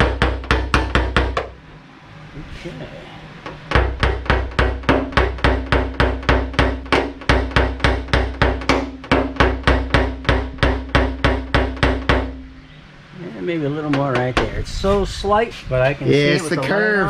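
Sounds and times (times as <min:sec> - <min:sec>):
hammer tapping on metal: 0:00.0 - 0:01.6, 0:03.4 - 0:12.5, 0:13.8 - 0:14.6.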